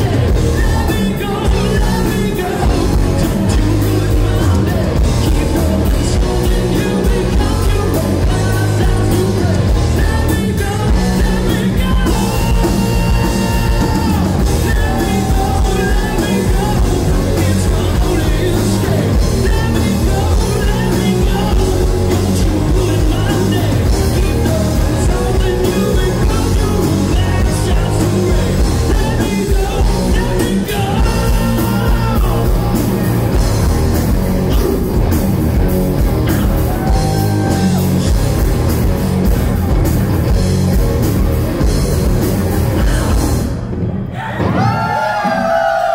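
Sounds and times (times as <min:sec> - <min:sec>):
live rock band playing: 0:00.0 - 0:45.9.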